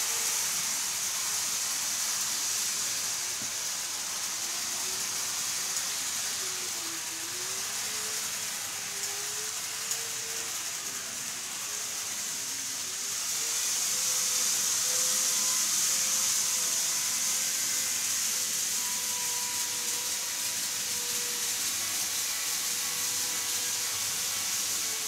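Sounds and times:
faint motor whine: 0.0 - 25.0
model train wheels rumbling on rail: 0.0 - 25.0.

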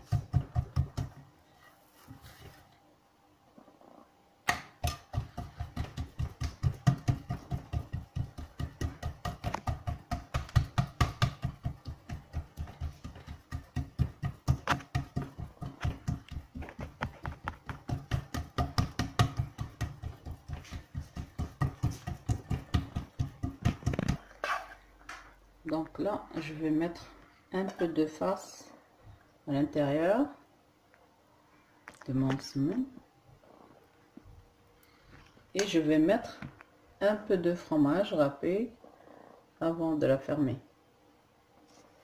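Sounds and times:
hands slapping wet dough: 0.0 - 1.3, 4.4 - 24.3.

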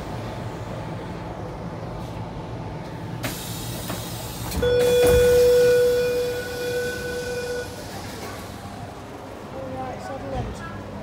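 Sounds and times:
train rumbling: 0.0 - 11.0
electric train horn blast: 4.6 - 7.8.

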